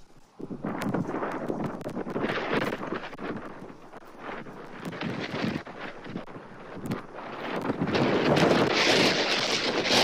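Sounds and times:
strong wind buffeting microphone: 0.0 - 10.0.

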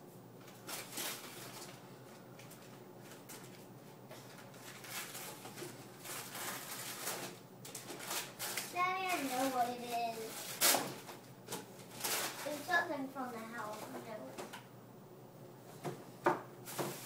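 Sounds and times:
wrapping paper rustling and tearing: 0.4 - 14.0.

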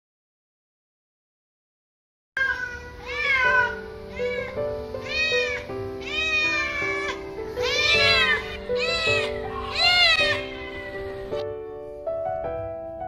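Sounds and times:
cat meowing loudly: 2.4 - 11.4
background music: 2.9 - 13.0.

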